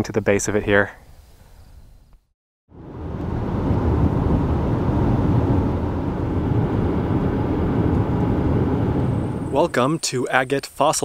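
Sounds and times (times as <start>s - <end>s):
road and wind noise in car: 2.7s - 10.0s.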